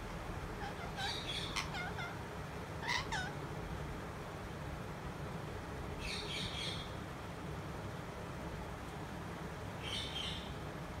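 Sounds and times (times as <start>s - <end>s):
parakeet chattering: 0.6s - 2.2s, 2.8s - 3.4s
parakeet squawks: 0.6s - 2.2s, 2.8s - 3.4s.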